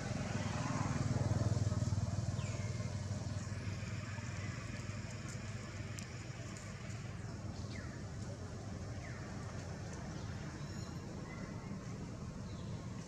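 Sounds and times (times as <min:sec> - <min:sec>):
passing vehicle engine rumble: 0:00.0 - 0:13.0.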